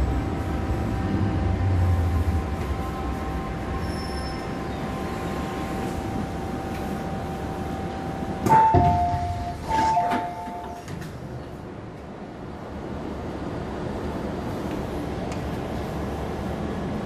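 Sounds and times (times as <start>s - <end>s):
steady hum: 0.0s - 10.7s
train rumble: 0.0s - 17.0s
train doors opening knock: 8.4s - 11.2s.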